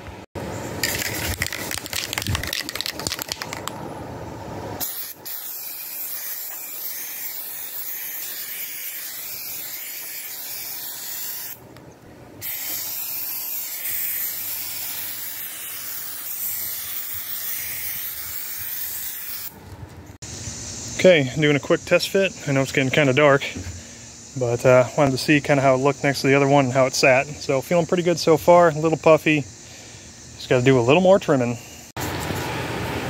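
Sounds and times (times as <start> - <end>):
aerosol can spraying: 4.8 - 11.6, 12.4 - 19.5.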